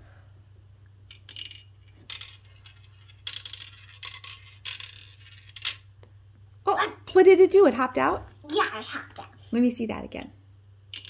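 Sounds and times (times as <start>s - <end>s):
marble clicking down a plastic track: 1.1s - 5.9s.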